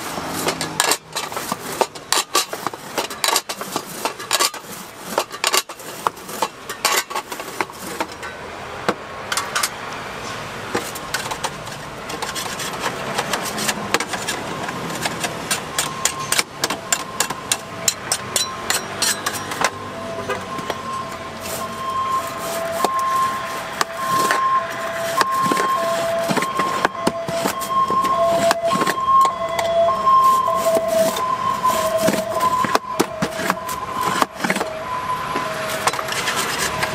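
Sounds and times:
cleaver cutting and knocking: 10.7s - 19.7s.

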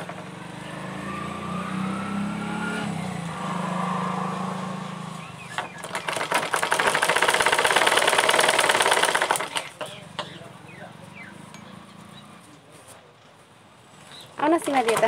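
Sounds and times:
sewing machine clattering: 5.7s - 10.0s, 14.6s - 15.0s.

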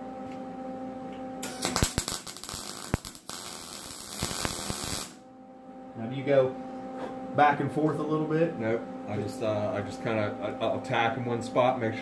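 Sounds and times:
welding arc crackling: 1.4s - 5.2s.

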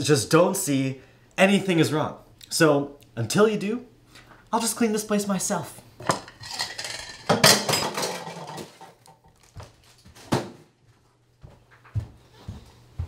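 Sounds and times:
dishes and cutlery clattering: 6.0s - 9.3s
soft footsteps on floor: 9.4s - 13.0s.

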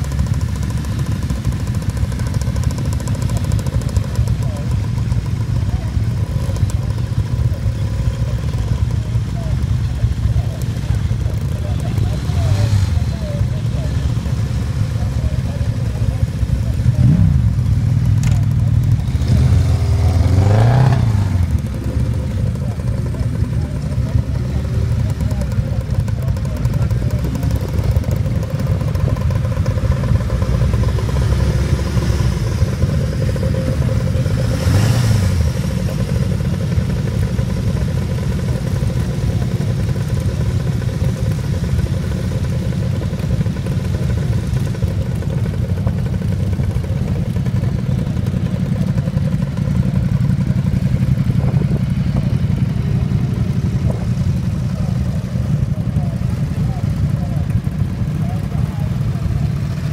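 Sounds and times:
motorcycle engines idling: 0.0s - 59.9s
engine revving: 16.9s - 22.6s, 29.7s - 37.5s.

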